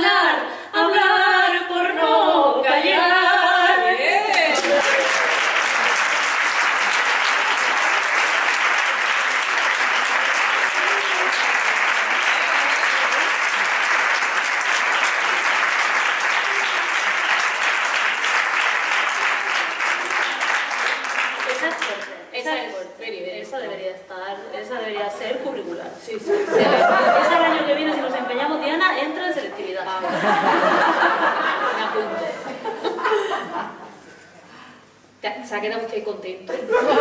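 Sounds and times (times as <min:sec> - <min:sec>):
woman singing: 0:00.0 - 0:04.1
audience applauding: 0:04.4 - 0:22.1.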